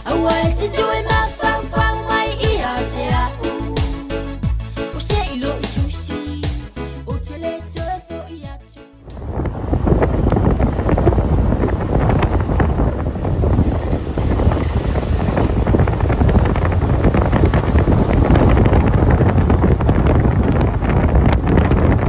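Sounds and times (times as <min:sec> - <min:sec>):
wind buffeting microphone: 0:09.0 - 0:22.0
car rumbling on road: 0:09.1 - 0:22.0.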